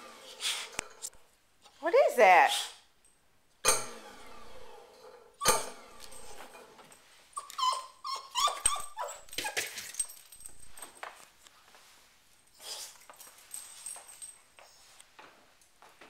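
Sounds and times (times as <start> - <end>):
dog whining and yelping: 7.4 - 10.1.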